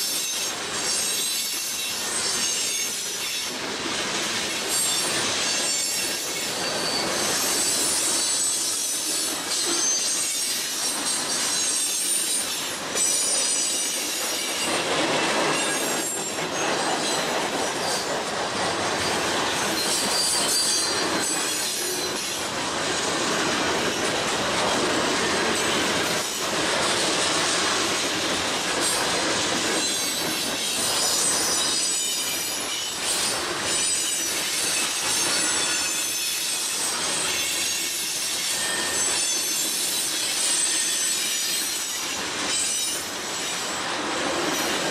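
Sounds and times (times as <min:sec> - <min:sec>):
freight train rumble and clatter: 0:00.0 - 0:44.9
wheel squeal: 0:04.7 - 0:14.8, 0:19.8 - 0:22.4, 0:29.8 - 0:43.7.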